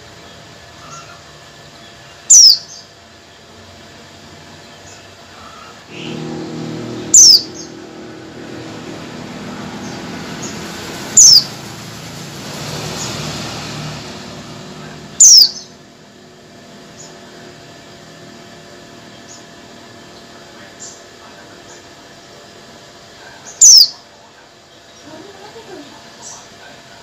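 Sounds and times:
vehicle engine running: 5.8s - 22.4s
bird calls sweeping downward: 5.9s - 15.8s.

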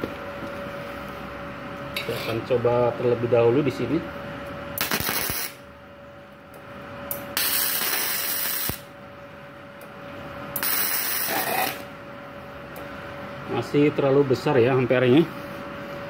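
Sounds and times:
welding arc crackling and sputtering: 4.7s - 5.6s, 7.1s - 8.9s, 10.5s - 11.9s.

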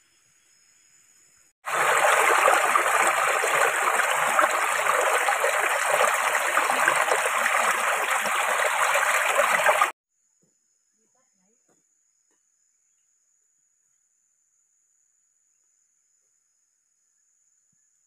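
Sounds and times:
stream flowing over rocks: 1.6s - 9.9s.

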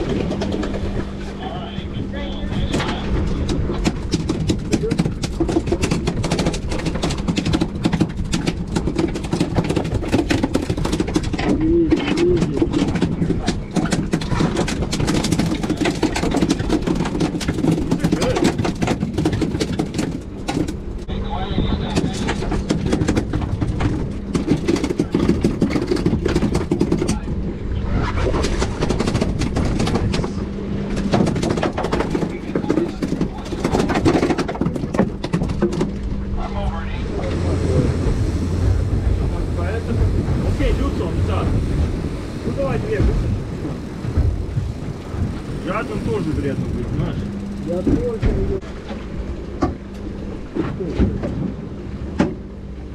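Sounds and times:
outboard motor humming: 0.0s - 52.9s
fishing gear clicks and knocks: 22.0s - 27.2s.

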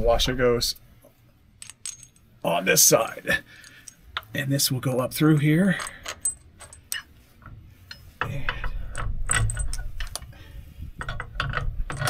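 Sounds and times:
metal hardware clicking and knocking: 1.6s - 2.3s, 5.7s - 10.3s, 11.0s - 12.0s.

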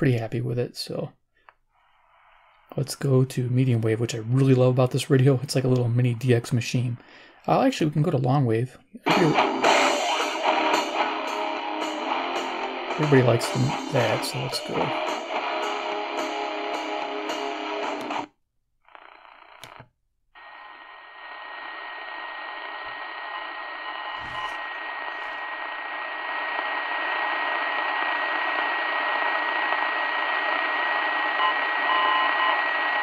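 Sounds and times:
radio static hiss: 1.8s - 8.2s, 9.0s - 19.8s, 20.4s - 33.0s
radio music: 9.0s - 18.3s, 20.4s - 33.0s.

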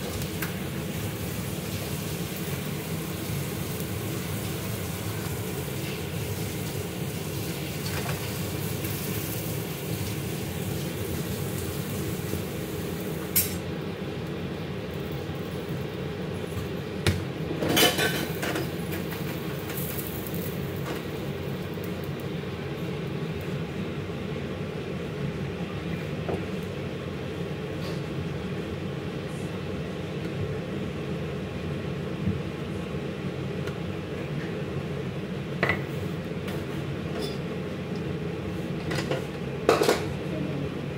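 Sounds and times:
cookware and utensils clinking: 17.6s - 18.7s, 38.9s - 40.1s.

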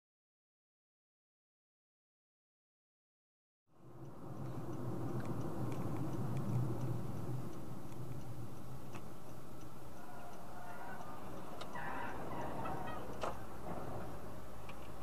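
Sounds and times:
car cabin engine and road hum: 3.8s - 15.0s
light ticks: 4.0s - 15.0s.

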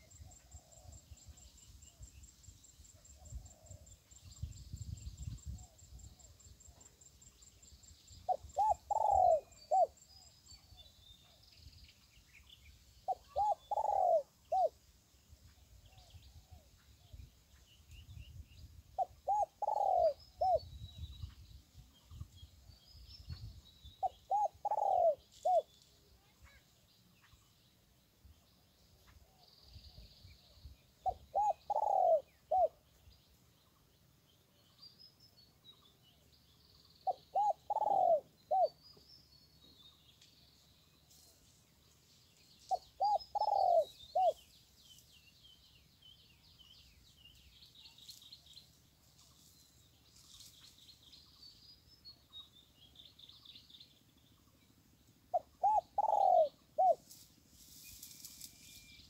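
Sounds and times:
small birds twittering: 0.0s - 59.0s
dove cooing: 8.3s - 10.0s, 13.1s - 14.8s, 19.0s - 20.7s, 24.0s - 25.7s, 31.0s - 32.8s, 37.0s - 38.8s, 42.7s - 44.4s, 55.3s - 57.1s.

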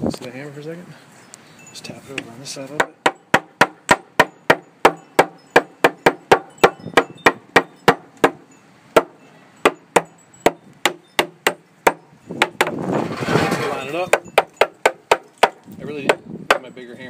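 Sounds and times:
hammer striking wooden board: 2.8s - 8.4s, 9.0s - 12.8s, 14.1s - 16.7s.

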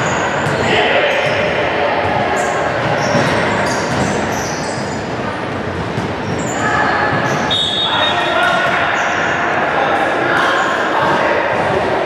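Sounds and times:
sneakers squeaking on wooden court: 0.0s - 9.3s
din of players and onlookers: 0.0s - 12.0s.

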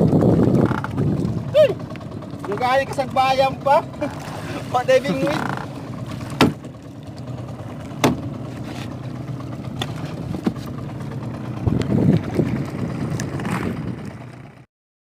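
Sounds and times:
small boat engine running: 0.0s - 14.7s
knocks on wooden boat: 5.3s - 6.8s, 7.9s - 8.4s.

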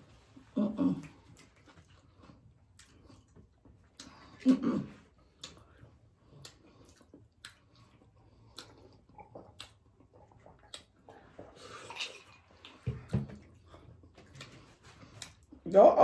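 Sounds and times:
chewing with mouth clicks: 0.2s - 15.6s
slurping from a glass: 11.1s - 12.8s.

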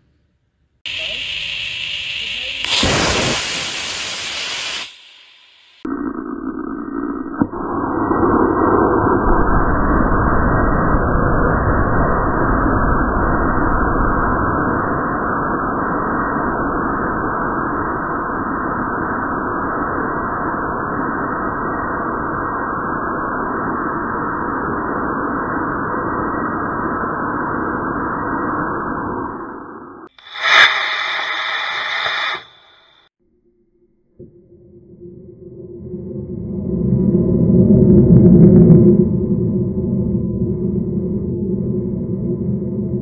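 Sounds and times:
rocket motor firing: 0.9s - 5.9s.

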